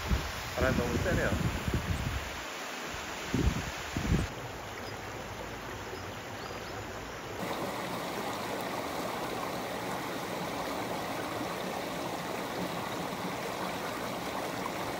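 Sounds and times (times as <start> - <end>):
stream rushing over stones: 7.4 - 14.9.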